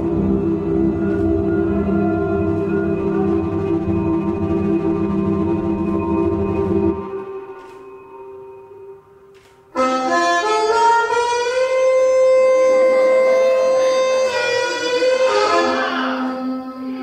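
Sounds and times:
blues harmonica chords: 0.0s - 8.2s, 9.7s - 17.0s
faint ambient music: 0.0s - 17.0s.

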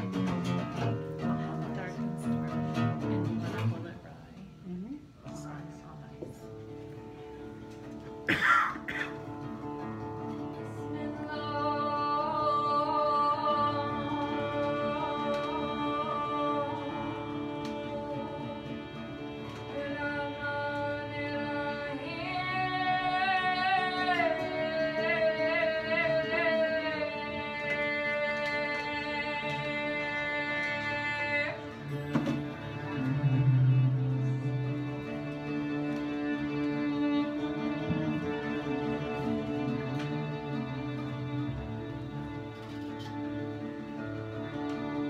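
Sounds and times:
small band playing: 0.0s - 21.8s, 22.6s - 45.0s
woman singing: 10.6s - 33.7s.

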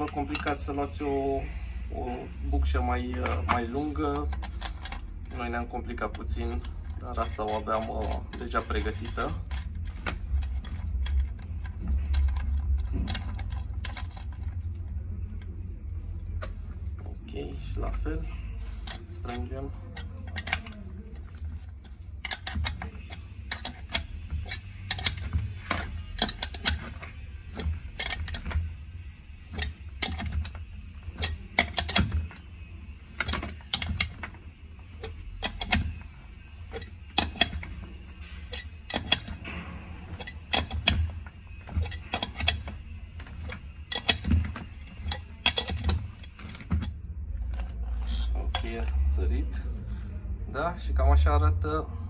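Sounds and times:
low handling rumble: 0.0s - 52.0s
wrench clicking on metal: 18.8s - 20.8s.

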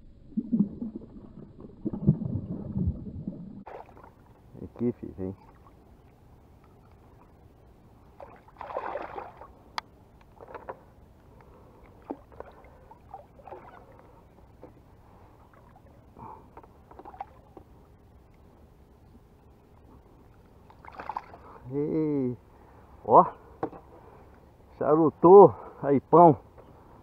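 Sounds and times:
fish splashing in water: 3.6s - 4.2s, 8.2s - 9.6s, 20.8s - 21.5s.

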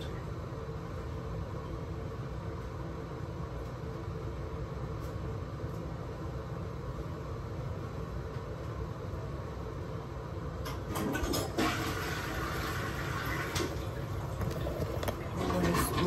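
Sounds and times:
steady low hum: 0.0s - 10.9s
toilet flushing: 10.6s - 16.0s.

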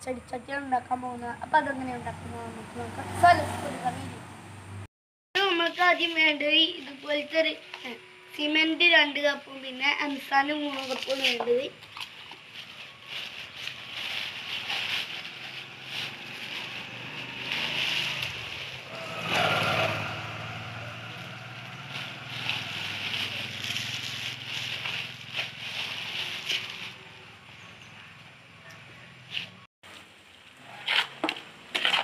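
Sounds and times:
plastic bag crinkling: 10.8s - 18.8s, 21.9s - 27.0s
slushy scraping of cement mix: 30.7s - 32.0s.

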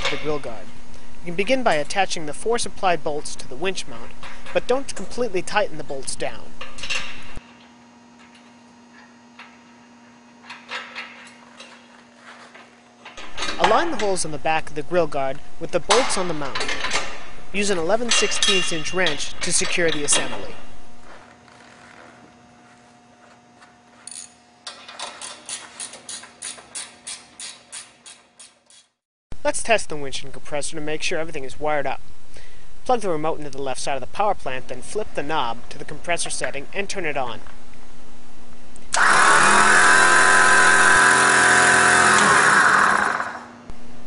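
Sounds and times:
ratchet wrench clicking: 25.0s - 28.9s
air compressor running: 38.9s - 43.8s.

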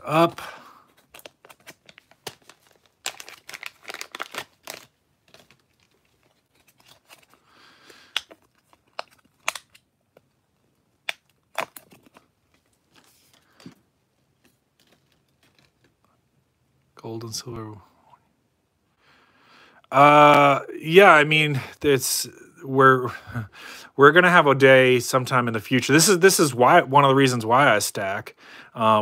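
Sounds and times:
plastic sleeve crinkling: 0.1s - 16.1s.

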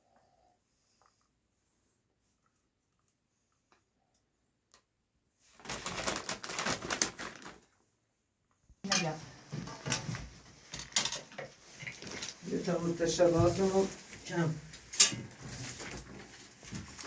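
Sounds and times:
people talking: 8.9s - 9.2s, 12.4s - 14.6s.

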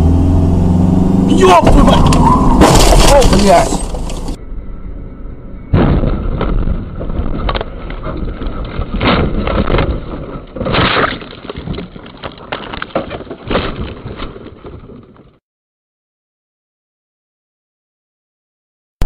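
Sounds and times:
loud rumbling of car crash: 1.3s - 4.4s, 5.6s - 14.9s.

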